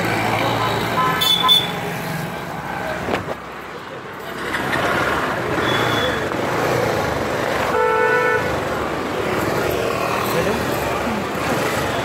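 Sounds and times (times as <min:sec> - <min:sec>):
street traffic noise: 0:00.0 - 0:12.0
vehicle horn: 0:01.0 - 0:01.8, 0:07.7 - 0:08.5.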